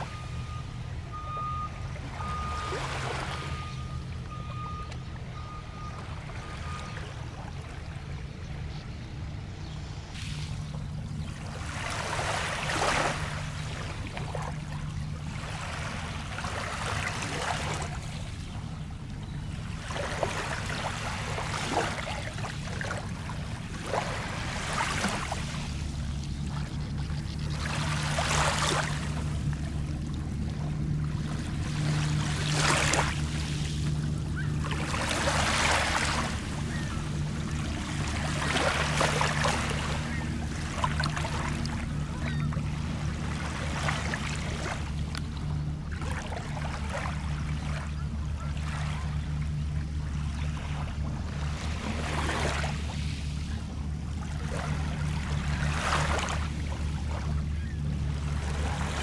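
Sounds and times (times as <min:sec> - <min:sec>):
waves lapping on pebbles: 0:10.1 - 0:18.4, 0:19.6 - 0:26.7, 0:27.5 - 0:47.8, 0:50.2 - 0:53.5, 0:54.2 - 0:57.3.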